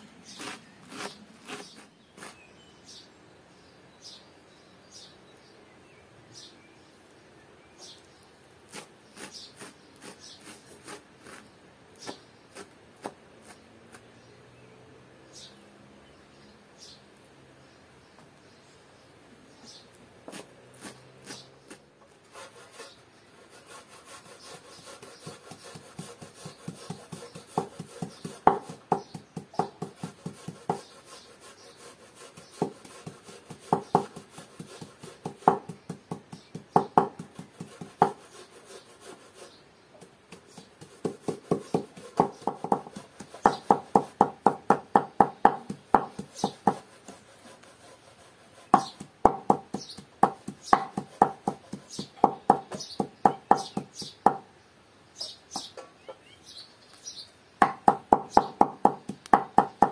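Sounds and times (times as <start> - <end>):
knife chopping on wooden board: 20.3 - 21.8, 24.9 - 30.9, 32.4 - 38.2, 40.0 - 47.2, 48.7 - 54.4, 57.6 - 59.9.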